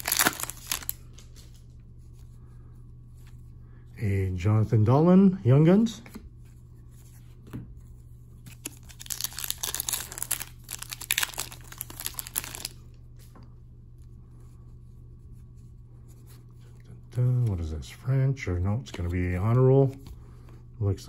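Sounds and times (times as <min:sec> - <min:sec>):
foil wrapper crinkling: 0:00.0 - 0:01.6, 0:08.5 - 0:12.9.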